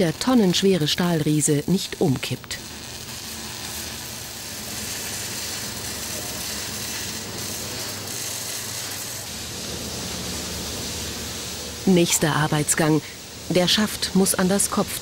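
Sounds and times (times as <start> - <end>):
arc welding crackling hiss: 0.0 - 15.0.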